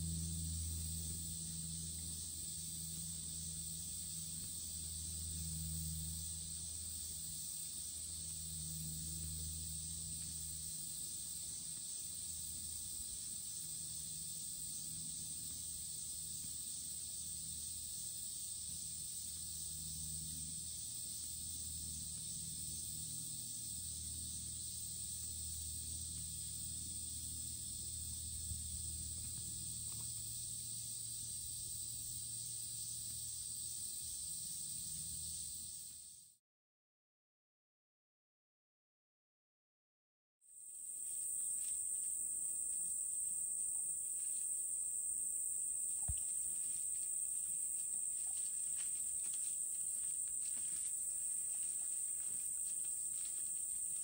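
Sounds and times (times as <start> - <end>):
low hum: 0.0 - 35.6
high-pitched insect chorus: 0.0 - 36.4, 40.5 - 54.0.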